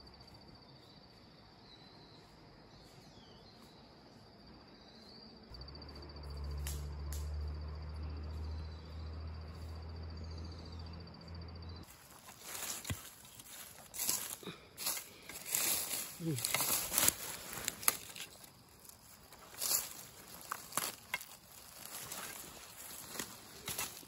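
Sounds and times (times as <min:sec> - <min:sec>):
faint bird chirps: 0:00.0 - 0:07.4.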